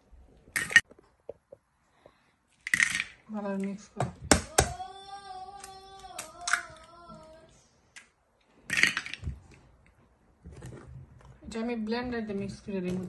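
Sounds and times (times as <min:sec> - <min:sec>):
high voice singing: 0:04.5 - 0:07.6.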